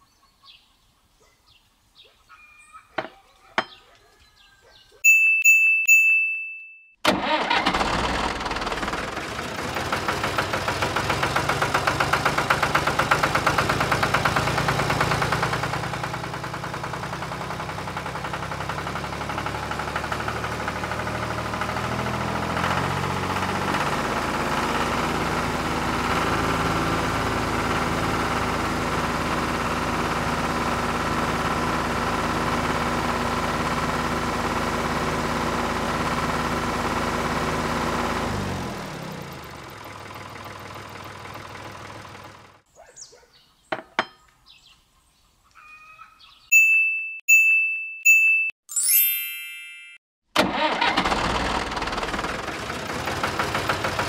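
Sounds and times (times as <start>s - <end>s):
tractor engine running: 7.0s - 42.7s, 50.4s - 54.0s.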